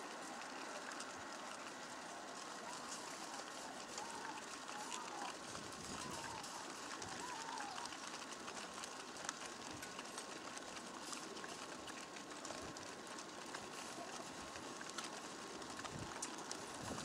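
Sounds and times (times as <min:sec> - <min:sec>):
small clicks: 0:00.0 - 0:17.0.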